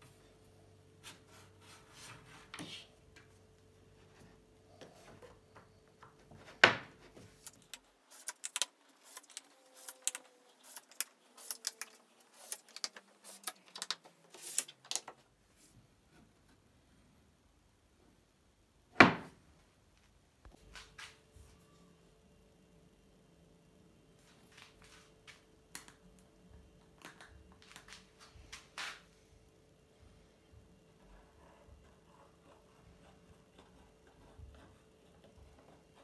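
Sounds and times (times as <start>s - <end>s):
magnets clicking: 7.4s - 15.1s.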